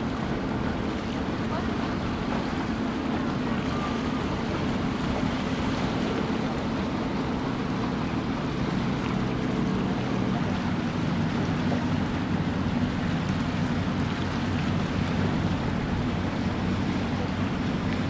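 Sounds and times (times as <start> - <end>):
motorboat engines droning: 0.0 - 18.0.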